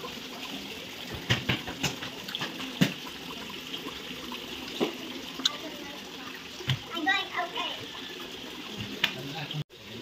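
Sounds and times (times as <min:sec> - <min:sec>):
water plops and drips: 0:00.0 - 0:09.6
water pouring into pond: 0:00.0 - 0:10.0.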